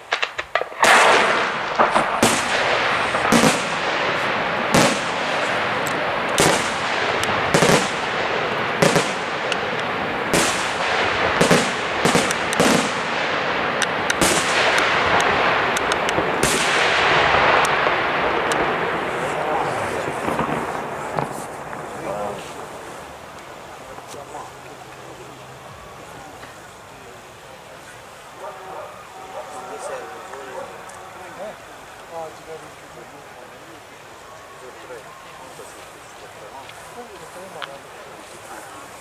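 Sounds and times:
firework shell bursts: 0:00.0 - 0:18.7
continuous din: 0:00.0 - 0:38.8.

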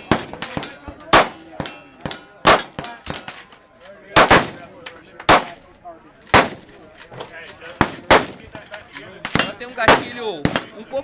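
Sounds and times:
pistol shots: 0:00.0 - 0:03.4, 0:04.1 - 0:04.7, 0:05.3 - 0:05.6, 0:06.3 - 0:06.7, 0:07.8 - 0:08.4, 0:09.2 - 0:10.8.

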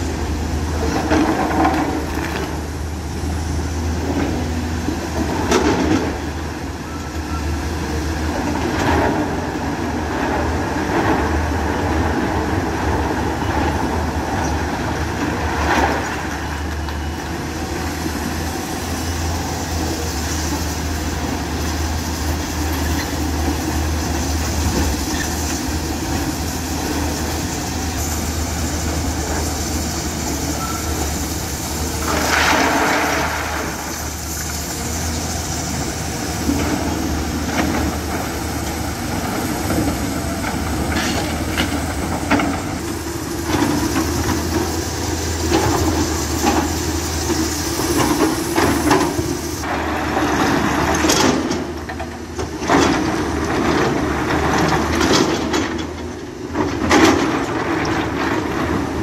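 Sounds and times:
excavator diesel engine running: 0:00.0 - 0:59.0
rock pouring from bucket: 0:32.0 - 0:34.2.

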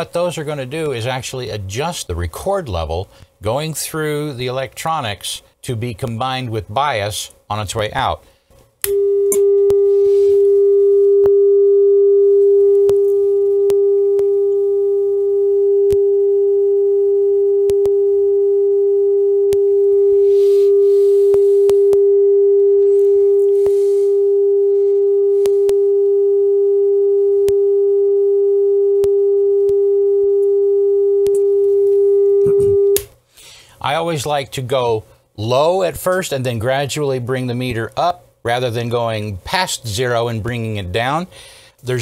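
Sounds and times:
sine test tone: 0:08.9 - 0:33.0.

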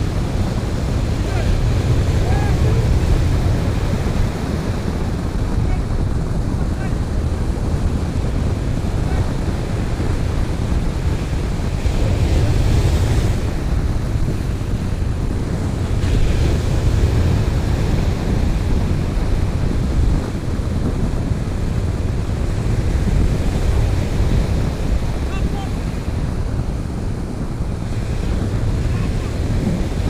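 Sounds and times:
ocean surf breaking: 0:00.0 - 0:30.0
wind buffeting microphone: 0:00.0 - 0:30.0.

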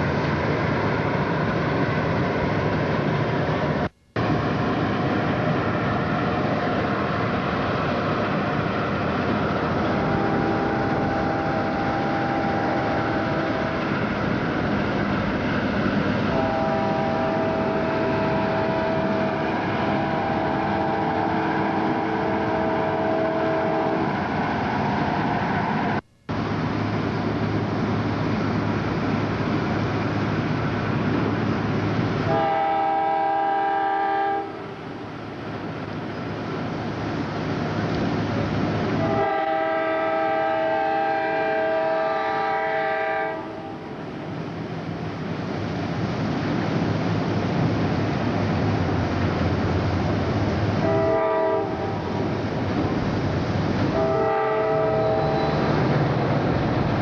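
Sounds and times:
engine drone: 0:00.0 - 0:57.0
passing train rumble: 0:00.0 - 0:57.0
train air horn blast: 0:09.7 - 0:14.0, 0:16.2 - 0:24.9, 0:32.2 - 0:34.8, 0:39.0 - 0:44.0, 0:50.8 - 0:52.2, 0:53.9 - 0:56.1.

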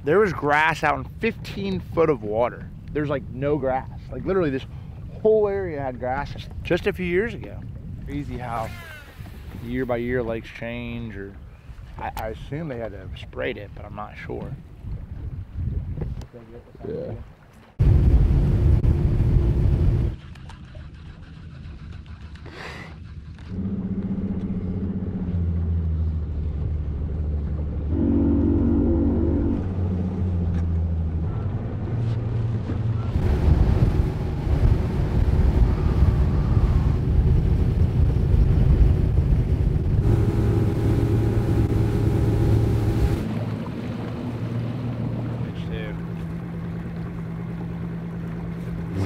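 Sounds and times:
water noise: 0:00.0 - 0:49.0
wind: 0:00.0 - 0:49.0
outboard engine running: 0:17.8 - 0:49.0.

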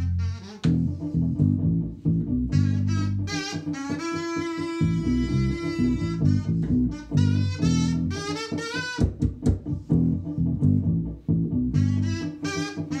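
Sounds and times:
kazoo buzzing a melody: 0:00.0 - 0:00.9, 0:02.5 - 0:09.3, 0:11.8 - 0:13.0
electric bass guitar: 0:00.0 - 0:13.0.

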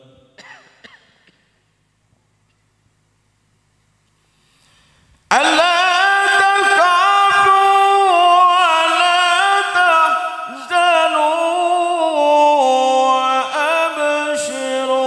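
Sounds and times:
man chanting through microphone: 0:00.0 - 0:00.4, 0:05.3 - 0:15.0.

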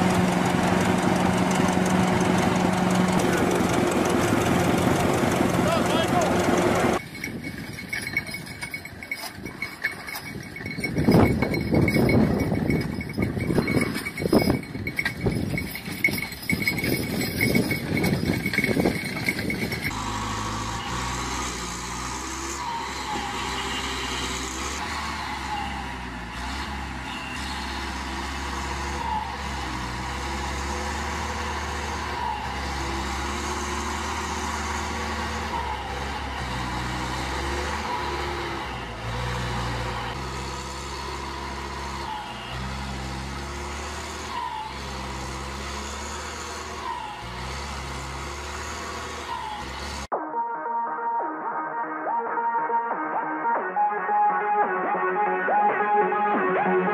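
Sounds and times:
diesel engine running under load: 0:00.0 - 0:50.1
ox team clattering and ringing: 0:00.9 - 0:20.1.

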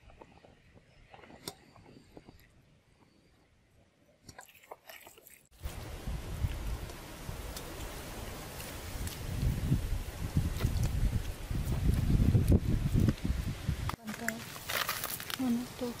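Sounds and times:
wind rumble on microphone: 0:05.6 - 0:14.0
plant fibres crunching and crackling: 0:13.9 - 0:16.0.

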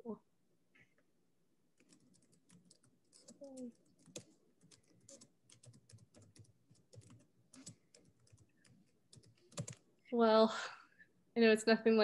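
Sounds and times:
faint keyboard typing: 0:01.8 - 0:09.9.

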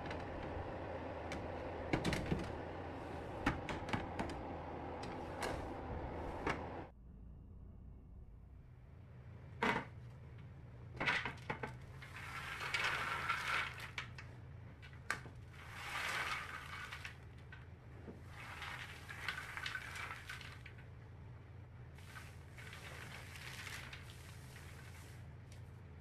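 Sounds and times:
low steady hum: 0:00.0 - 0:26.0
peanuts rattling on metal tray: 0:18.5 - 0:20.7.

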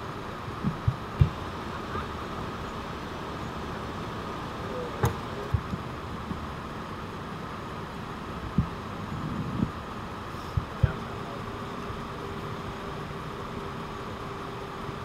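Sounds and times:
vehicle engine idling: 0:00.0 - 0:15.0
dull knocks: 0:00.6 - 0:01.4.

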